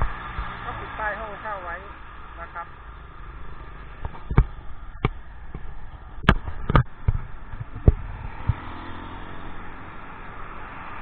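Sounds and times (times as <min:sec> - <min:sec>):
road traffic hum: 0:00.0 - 0:11.0
sharp thumps: 0:03.8 - 0:08.8.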